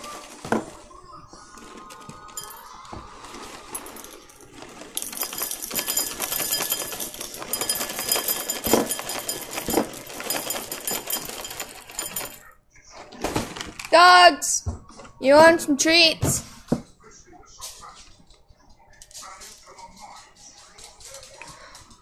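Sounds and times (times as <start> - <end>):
cereal pouring into bowl: 2.3 - 12.4.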